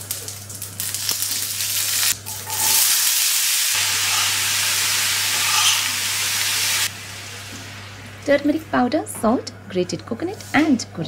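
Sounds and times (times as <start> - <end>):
hot oil sizzling in a pan: 0.0 - 8.9.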